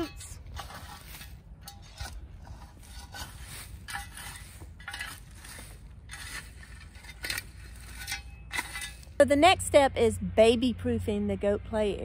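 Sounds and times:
shovel scraping into pine needles: 0:00.0 - 0:09.2.

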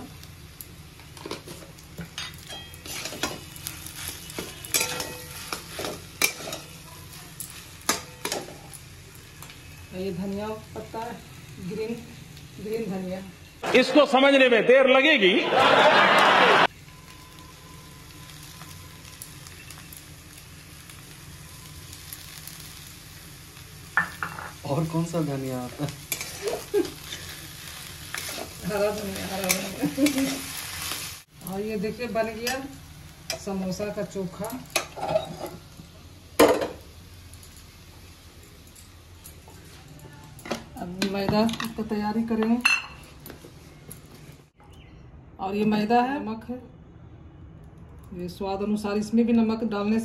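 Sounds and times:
food sizzling in pan: 0:00.0 - 0:13.8, 0:15.9 - 0:44.6
metal spatula scraping a pan: 0:02.2 - 0:06.8, 0:26.1 - 0:27.4, 0:28.1 - 0:31.0, 0:34.8 - 0:35.6.

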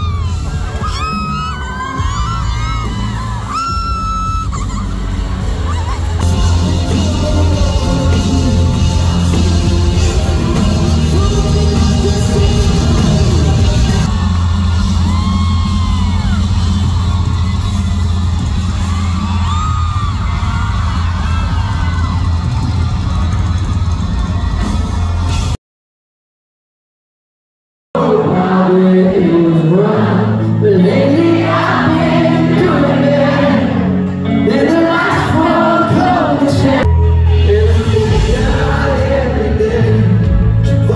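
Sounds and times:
live pop-rock band: 0:00.0 - 0:25.6, 0:28.0 - 0:40.9
person singing: 0:05.8 - 0:16.2, 0:28.0 - 0:40.9.

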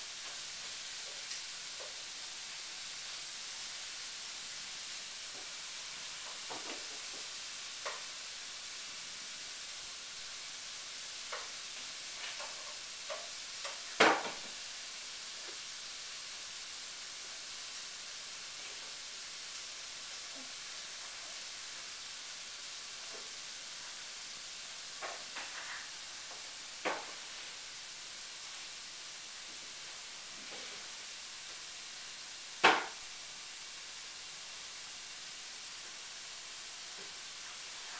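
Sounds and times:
steady hiss: 0:00.0 - 0:37.9.

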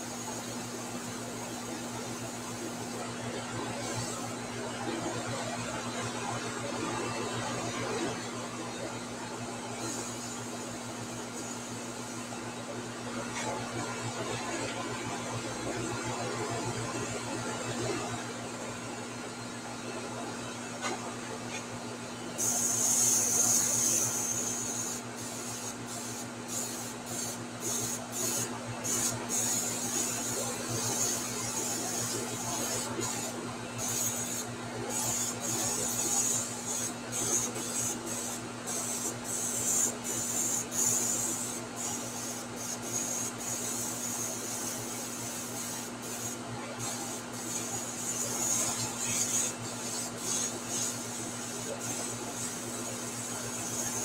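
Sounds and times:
airbrush hissing: 0:22.4 - 0:54.0.

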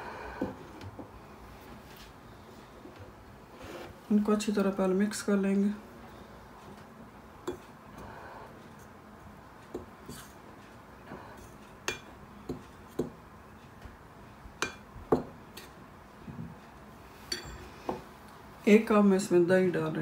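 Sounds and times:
spoon clinking against glass bowl: 0:17.3 - 0:17.6.

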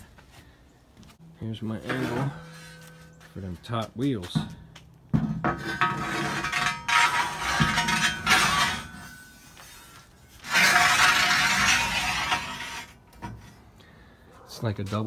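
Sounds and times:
metal wheels rolling on steel track: 0:05.5 - 0:13.2.

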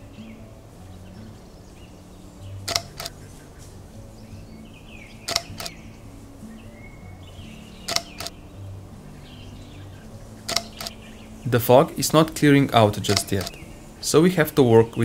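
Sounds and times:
soft background music: 0:00.0 - 0:15.0
camera shutter clicking: 0:02.7 - 0:03.2, 0:05.3 - 0:05.8, 0:07.9 - 0:08.3, 0:10.5 - 0:11.0, 0:13.1 - 0:13.6.

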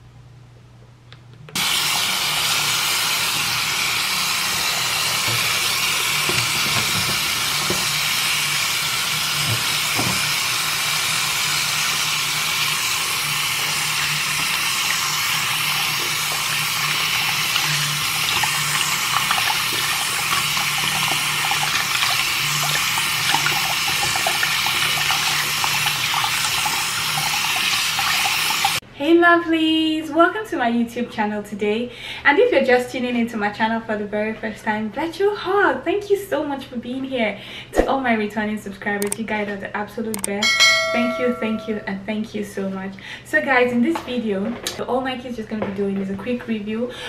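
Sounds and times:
tap water running into sink: 0:01.6 - 0:28.8.

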